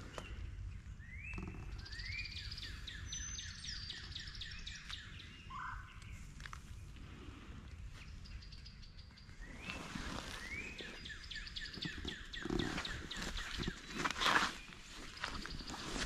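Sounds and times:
songbirds singing: 0:00.0 - 0:16.0
undergrowth rustling: 0:09.2 - 0:16.0
footsteps in dry leaves: 0:13.1 - 0:16.0.

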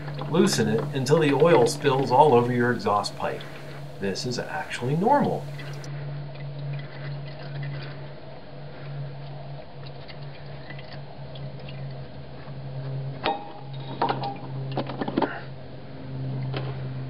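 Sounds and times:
oil trickling and dripping: 0:00.0 - 0:14.8
steady low hum: 0:00.0 - 0:17.0.

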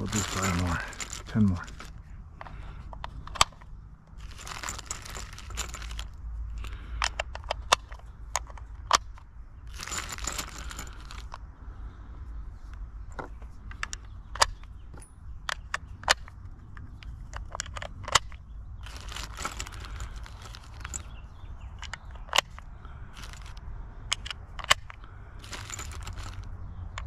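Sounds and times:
plastic bag crinkling: 0:00.0 - 0:02.0, 0:04.2 - 0:06.1, 0:18.8 - 0:21.0, 0:23.2 - 0:23.6, 0:25.4 - 0:26.4
metal cartridges clinking: 0:00.0 - 0:11.4, 0:13.1 - 0:27.0.

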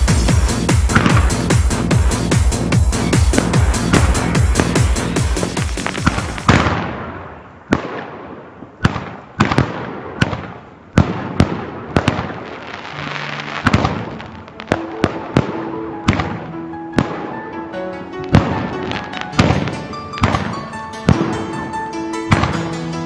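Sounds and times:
fireworks crackling and hissing: 0:00.0 - 0:15.5, 0:18.3 - 0:20.8
fireworks bangs: 0:00.0 - 0:17.4, 0:18.2 - 0:22.7.

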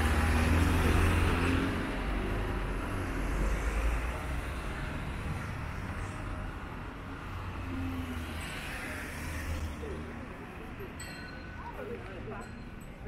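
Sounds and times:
road noise: 0:00.0 - 0:13.0.

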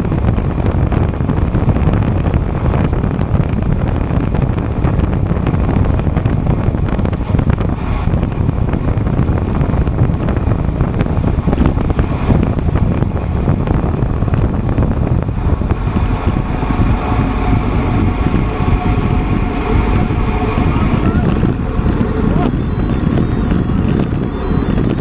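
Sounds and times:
wind rushing over microphone: 0:00.0 - 0:25.0
faint steady tones: 0:15.6 - 0:25.0.

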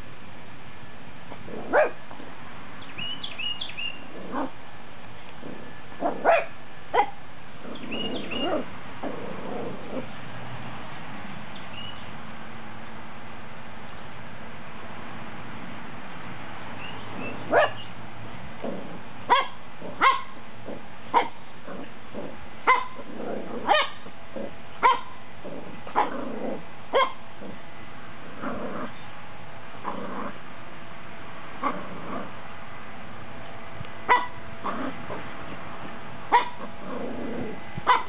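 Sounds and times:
puppy barking: 0:01.6 - 0:02.0, 0:06.0 - 0:07.2, 0:17.2 - 0:17.8, 0:19.3 - 0:20.4, 0:21.1 - 0:21.4, 0:22.7 - 0:23.0, 0:23.6 - 0:24.1, 0:24.8 - 0:25.2, 0:25.9 - 0:26.2, 0:26.9 - 0:27.2, 0:34.1 - 0:34.9, 0:36.3 - 0:36.7
puppy low grumbles: 0:04.0 - 0:04.6, 0:05.3 - 0:06.4, 0:07.6 - 0:10.2, 0:18.6 - 0:19.2, 0:19.8 - 0:20.9, 0:21.6 - 0:24.6, 0:25.4 - 0:26.7, 0:27.3 - 0:29.0, 0:29.8 - 0:30.4, 0:31.6 - 0:32.4, 0:34.6 - 0:38.0.

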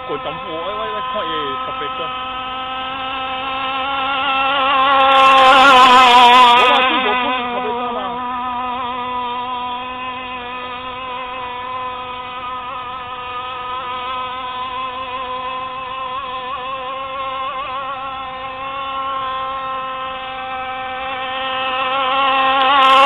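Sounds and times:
model boat engine droning: 0:00.0 - 0:23.0.

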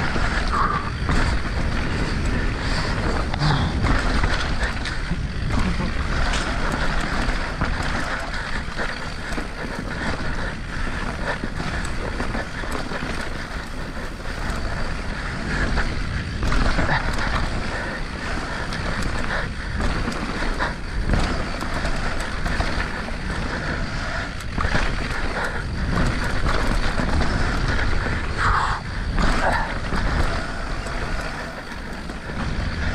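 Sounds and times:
bike rattles and knocks: 0:00.0 - 0:32.9
tyres rumbling on dirt: 0:00.0 - 0:32.9
wind buffeting microphone: 0:00.0 - 0:32.9.

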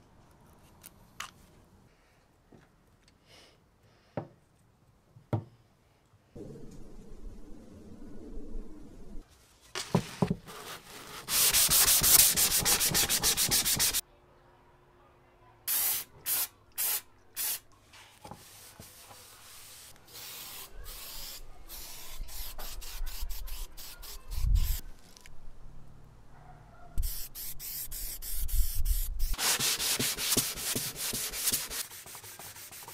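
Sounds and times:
aerosol spray can hissing: 0:19.6 - 0:24.8, 0:27.0 - 0:32.9.

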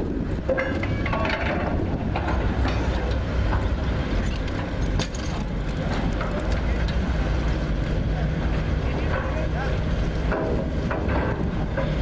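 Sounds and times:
diesel engines running: 0:00.0 - 0:12.0
metallic clanks: 0:00.4 - 0:07.0.

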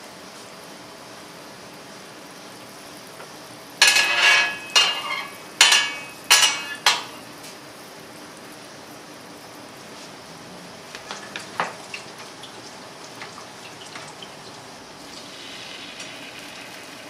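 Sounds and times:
metal utensil striking metal cookware: 0:03.8 - 0:07.2.

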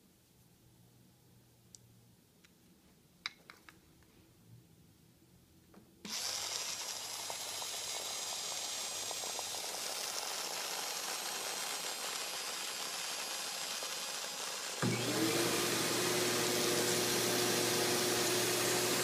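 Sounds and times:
rotary brush spinning hiss: 0:06.1 - 0:14.8.

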